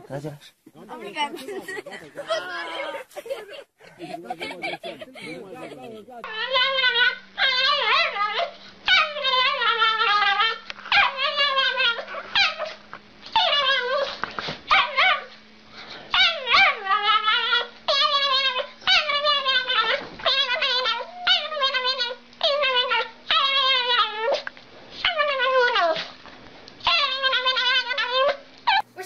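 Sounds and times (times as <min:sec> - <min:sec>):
small dog howling: 0:06.2 - 0:15.4, 0:16.1 - 0:26.1, 0:26.8 - 0:28.8.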